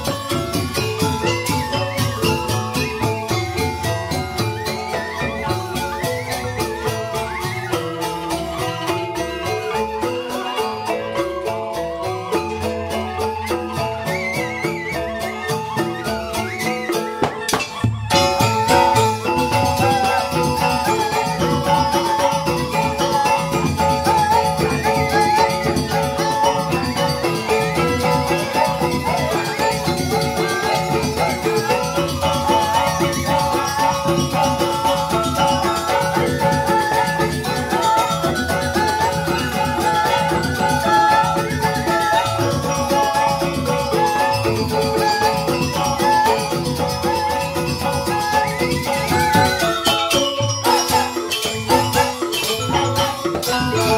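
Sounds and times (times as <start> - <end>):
bamboo xylophones playing: 0.0 - 53.9
hand drum rhythm: 0.0 - 53.9
rattling shimmer: 17.6 - 53.9.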